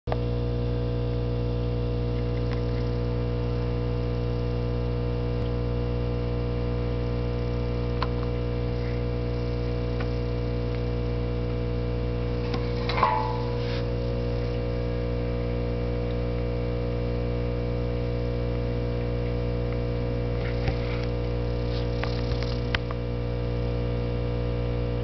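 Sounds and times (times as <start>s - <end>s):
electrical hum: 0.1s - 25.0s
faint ticks: 2.1s - 3.0s.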